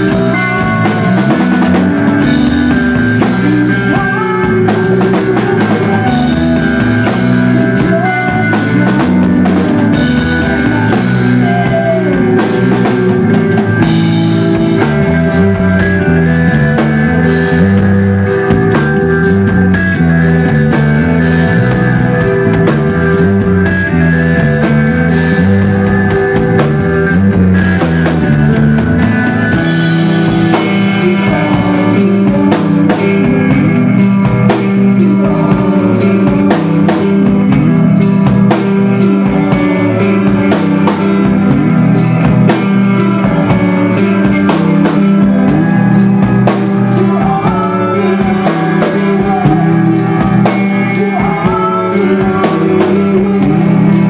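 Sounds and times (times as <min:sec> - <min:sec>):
drum kit beat: 0:00.0 - 0:54.0
guitars: 0:00.0 - 0:54.0
rock band playing live: 0:00.0 - 0:54.0.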